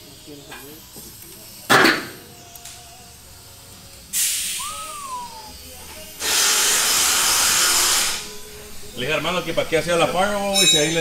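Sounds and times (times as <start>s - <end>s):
pressurised gas hissing: 0.9s - 9.5s
whistle-like tone: 4.5s - 5.6s.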